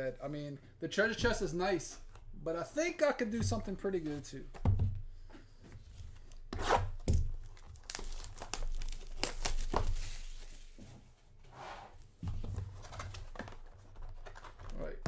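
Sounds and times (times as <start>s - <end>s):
plastic rustling: 5.9s - 10.9s
shrink wrap tearing: 6.7s - 10.5s.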